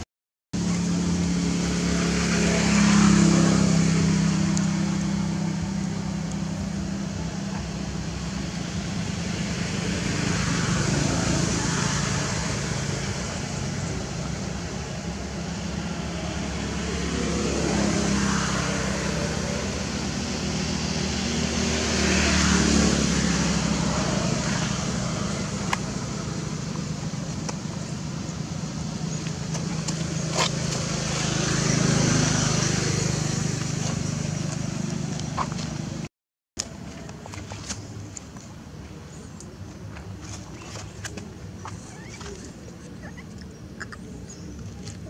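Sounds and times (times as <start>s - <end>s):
motor vehicles passing: 0.6s - 45.0s.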